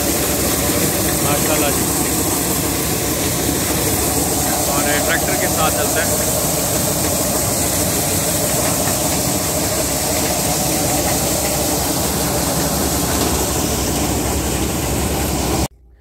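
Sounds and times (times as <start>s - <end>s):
tractor and sheller machine noise: 0.0s - 15.7s.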